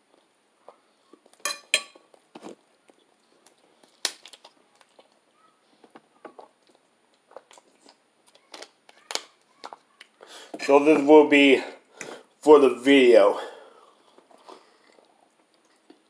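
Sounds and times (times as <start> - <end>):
fork and dish clinking: 1.4 - 2.0.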